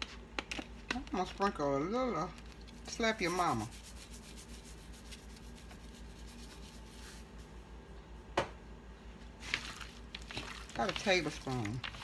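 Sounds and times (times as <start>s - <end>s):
seasoning shaker rattling: 10.0s - 12.0s.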